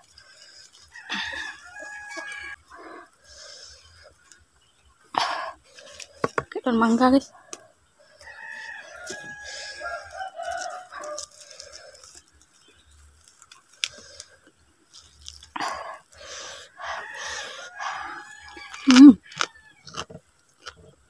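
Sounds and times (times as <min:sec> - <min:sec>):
rooster crowing: 0:00.9 - 0:03.1, 0:08.2 - 0:12.0, 0:16.4 - 0:20.0.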